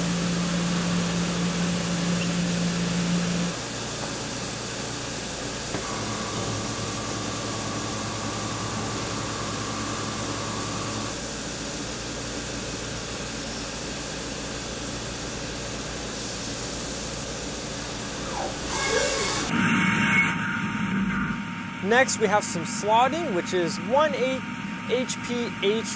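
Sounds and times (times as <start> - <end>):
faint machine whine: 0.0 - 25.9
metal cutting noise: 5.8 - 11.2, 17.9 - 25.9.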